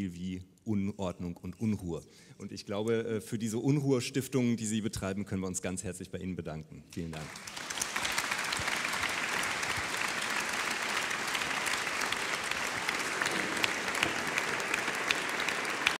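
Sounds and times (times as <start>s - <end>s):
audience applauding: 7.1s - 16.0s.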